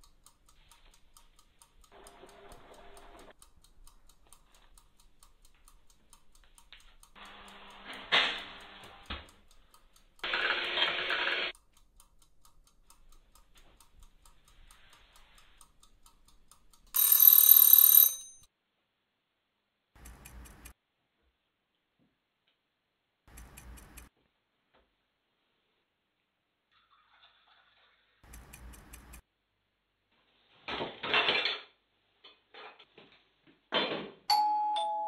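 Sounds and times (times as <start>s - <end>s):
faint steady ticking: 0.0s - 18.5s, 20.0s - 20.8s, 23.3s - 24.1s, 28.2s - 29.2s
bell ringing: 17.0s - 18.5s, 34.3s - 35.0s.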